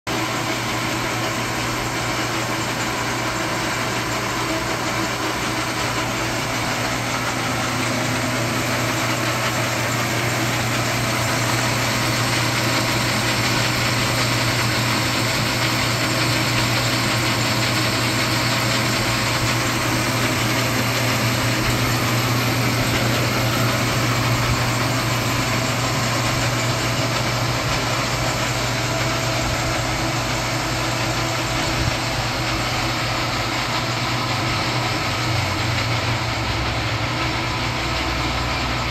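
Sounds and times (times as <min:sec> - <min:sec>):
metal lathe whirring: 0:00.1 - 0:38.9.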